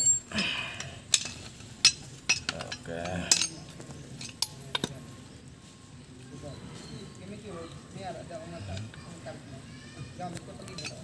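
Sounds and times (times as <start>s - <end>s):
metal parts clinking and knocking: 0.0s - 5.2s, 10.7s - 11.0s.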